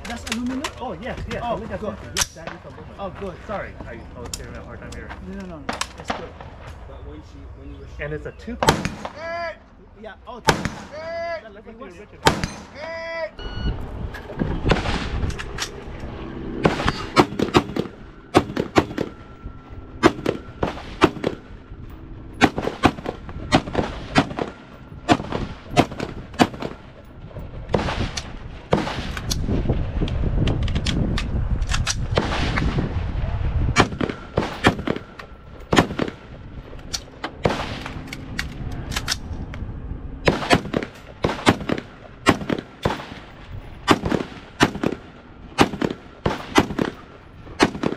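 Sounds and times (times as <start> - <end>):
rifle shots: 8.6 - 9.2, 10.4 - 11.0, 12.2 - 12.8, 16.6 - 19.2, 20.0 - 21.6, 22.4 - 27.0, 27.7 - 29.5, 31.7 - 33.0, 33.8 - 36.3, 37.4 - 38.4, 40.2 - 47.9.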